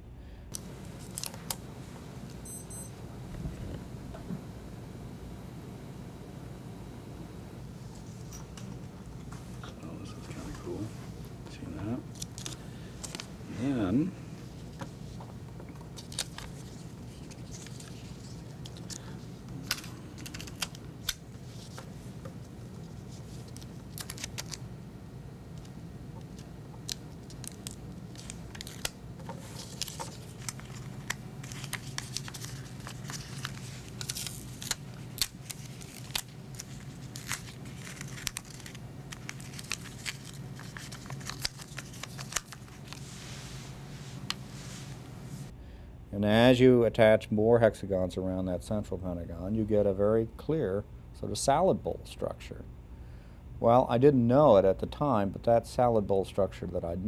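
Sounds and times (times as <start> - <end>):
steady low hum: 0.0 - 57.0
paper crinkling and rustling: 1.0 - 1.6, 12.1 - 13.3, 15.8 - 20.8, 22.8 - 24.6, 26.3 - 45.0
tape tearing: 26.9 - 43.0.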